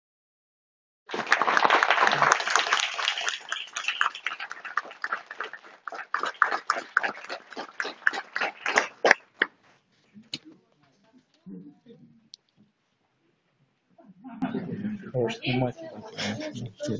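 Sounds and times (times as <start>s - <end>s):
audience applauding: 1.1s - 9.5s.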